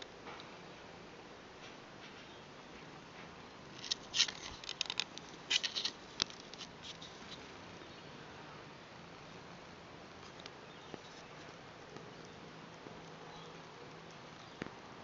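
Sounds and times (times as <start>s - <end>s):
cat claws scratching fabric: 3.7s - 7.5s.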